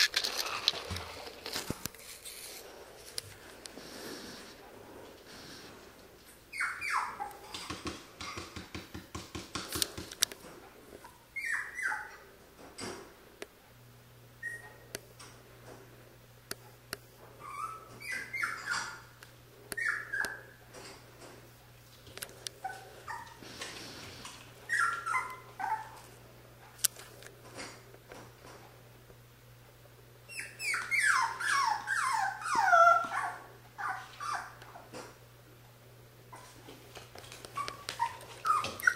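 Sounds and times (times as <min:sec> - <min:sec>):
puppy whimpering: 0:06.5 - 0:07.6, 0:11.4 - 0:12.2, 0:14.4 - 0:14.8, 0:17.4 - 0:19.1, 0:19.8 - 0:20.6, 0:22.6 - 0:23.4, 0:24.6 - 0:26.1, 0:30.3 - 0:34.9, 0:37.5 - 0:38.9.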